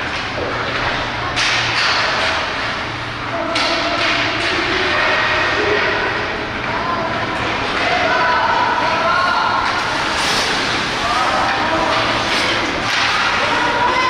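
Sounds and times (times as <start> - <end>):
ice skates scraping on ice: 9.8 - 14.0.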